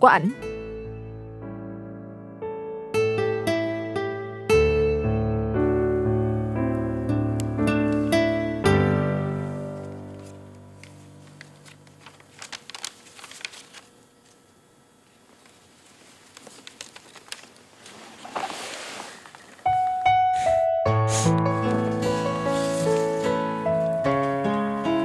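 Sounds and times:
piano music: 0.0 - 12.0, 19.6 - 25.0
paper sheets rustling: 9.4 - 14.5, 15.1 - 25.0.

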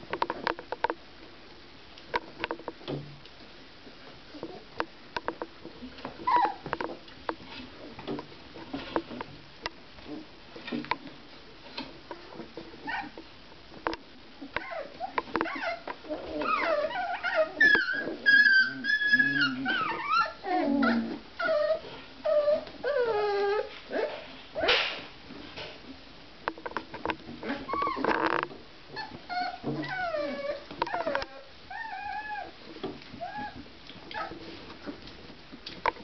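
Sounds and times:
puppies yelping and whining: 6.2 - 6.7, 12.8 - 13.2, 14.6 - 24.8, 27.4 - 28.3, 28.9 - 35.0.

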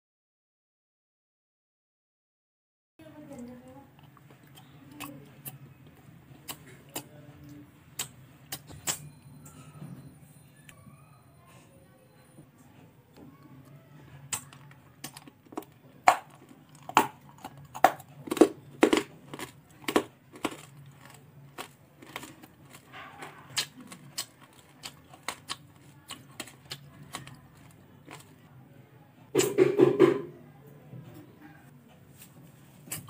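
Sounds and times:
candy chewing crunches: 14.2 - 28.6.

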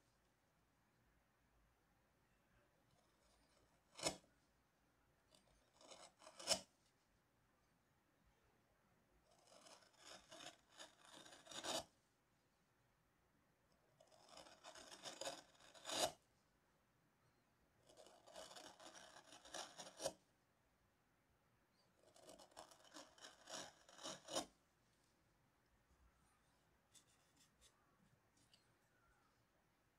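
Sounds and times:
carving gouge scraping through wood: 3.0 - 4.2, 5.3 - 6.7, 9.3 - 11.9, 13.9 - 16.2, 17.8 - 20.2, 22.0 - 24.5.

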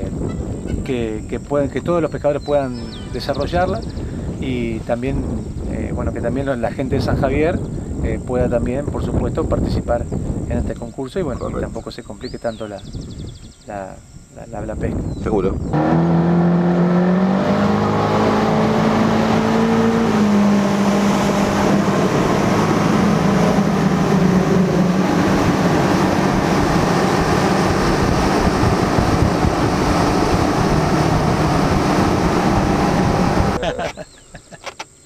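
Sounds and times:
wind and water rushing: 15.7 - 33.8
motorboat engine running: 17.9 - 33.6.

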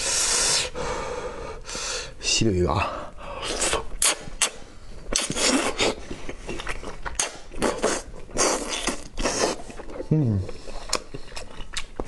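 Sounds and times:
wet chewing and lip-smacking: 3.5 - 12.0.

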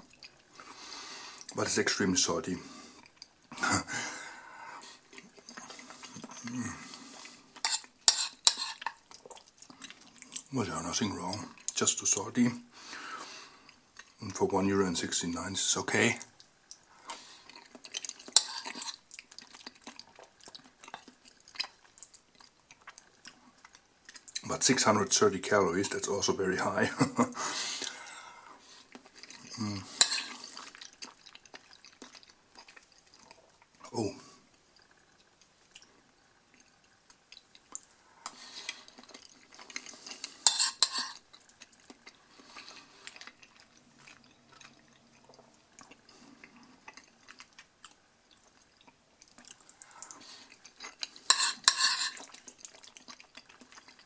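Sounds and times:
fork stirring macaroni: 7.6 - 10.5, 17.1 - 22.2, 28.8 - 33.3, 37.8 - 44.8, 49.3 - 54.0
fork clinking on ceramic plate: 30.0 - 30.3, 40.5 - 41.2, 51.3 - 52.2.

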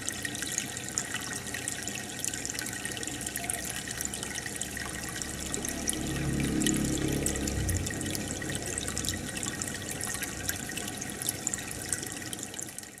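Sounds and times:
aquarium water bubbling: 0.0 - 13.0
low hum: 4.1 - 12.3.

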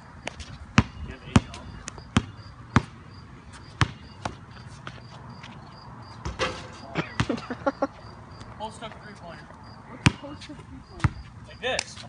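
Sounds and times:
basketball bouncing on concrete: 0.2 - 5.4, 6.1 - 7.5, 10.0 - 11.3.

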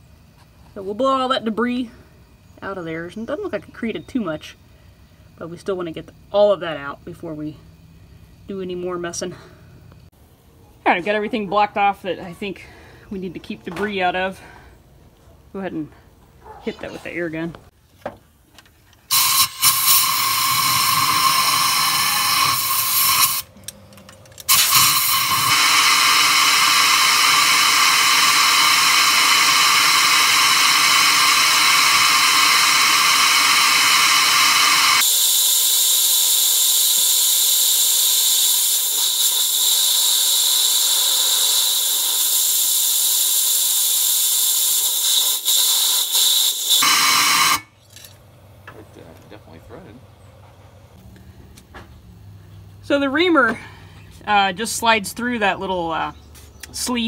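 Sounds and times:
compressed air blow gun hissing: 19.1 - 23.5, 24.5 - 47.7.

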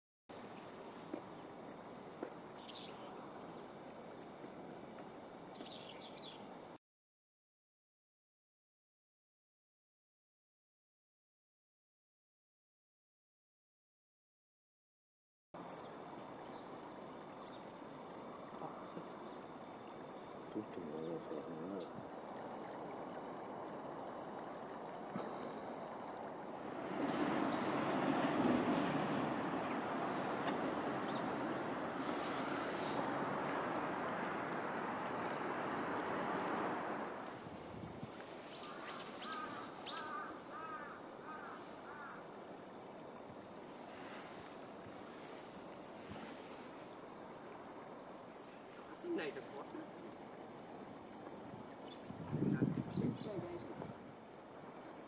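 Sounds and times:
bird chirping lower: 2.6 - 3.2, 3.9 - 4.6, 15.6 - 17.8, 20.0 - 21.4, 38.0 - 47.2, 50.7 - 53.4
river water flowing: 15.6 - 52.2, 53.6 - 55.0
vehicle passing: 26.5 - 37.3
kingfisher calling: 38.5 - 45.8.

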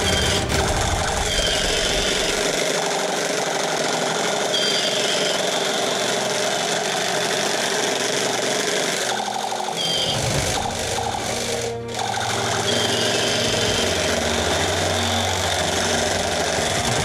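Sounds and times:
electronic beep: 4.5 - 5.7, 9.5 - 10.4.

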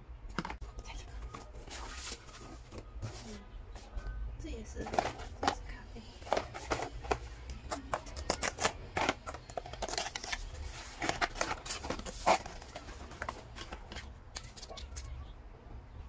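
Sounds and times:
cardboard box rustling and clicking: 4.8 - 5.6, 6.2 - 15.0.

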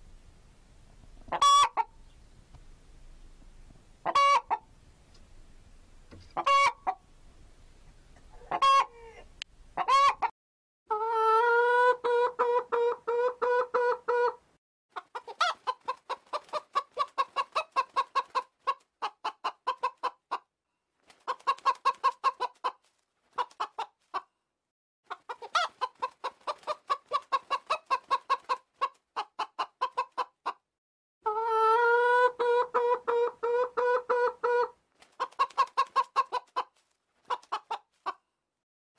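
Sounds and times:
chicken clucking: 1.3 - 2.2, 4.0 - 4.7, 6.3 - 7.0, 8.2 - 10.3, 10.9 - 20.5, 21.2 - 24.3, 25.1 - 30.6, 31.2 - 38.2.

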